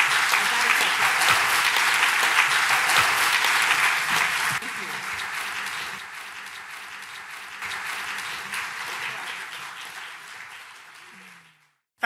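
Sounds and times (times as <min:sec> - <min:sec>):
audience applauding: 0:00.0 - 0:11.9.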